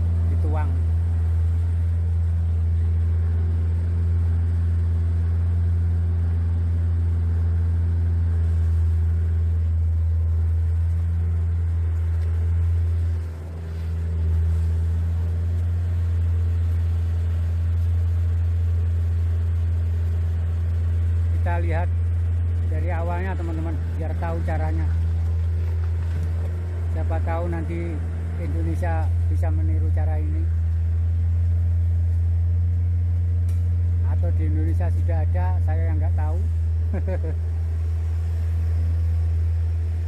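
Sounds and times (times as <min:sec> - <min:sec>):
machine engine humming: 0:00.0 - 0:40.0.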